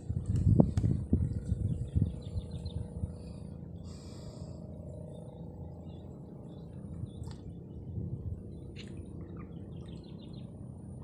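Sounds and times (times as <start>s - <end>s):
low rumble: 0.0s - 11.0s
birds chirping: 1.2s - 10.9s
bird hissing call: 3.8s - 4.6s.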